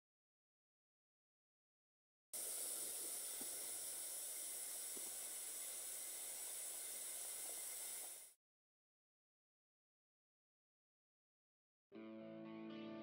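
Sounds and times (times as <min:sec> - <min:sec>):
water boiling in a pot: 0:02.4 - 0:08.4.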